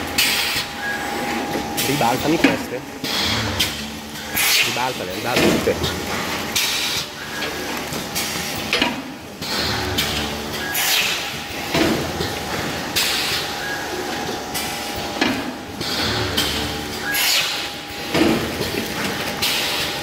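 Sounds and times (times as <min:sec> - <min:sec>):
machine hissing and clunking: 0:00.0 - 0:20.0
machine hum: 0:00.0 - 0:20.0.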